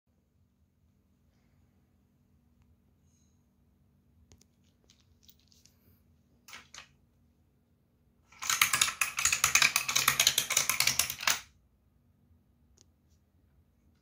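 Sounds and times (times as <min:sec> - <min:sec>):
toy car clattering down ramps: 0:08.4 - 0:11.5.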